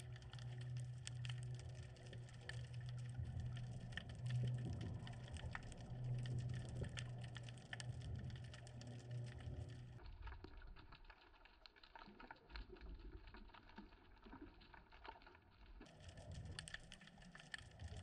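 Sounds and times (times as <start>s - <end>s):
low underwater hum: 0.0s - 18.0s
underwater clicking and crackling: 0.0s - 18.0s.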